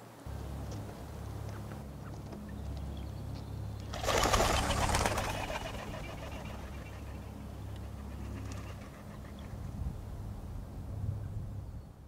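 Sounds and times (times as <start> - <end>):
steady low hum: 0.0 - 12.0
bird wings flapping: 3.9 - 7.1.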